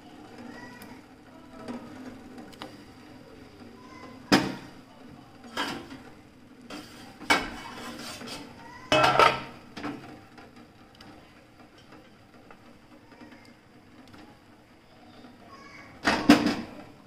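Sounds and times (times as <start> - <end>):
steel cookware clinking: 6.7 - 9.5.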